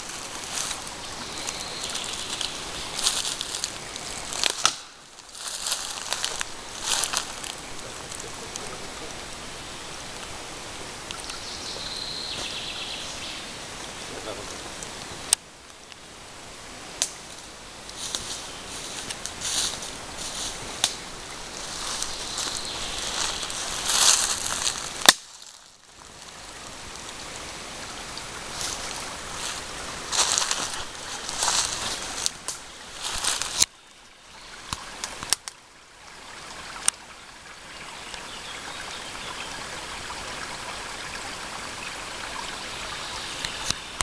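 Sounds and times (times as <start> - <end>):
footsteps in dry leaves: 0.0 - 8.3, 17.9 - 26.8, 28.4 - 33.7
steady outdoor hiss: 0.0 - 44.0
stream trickling over pebbles: 0.0 - 44.0.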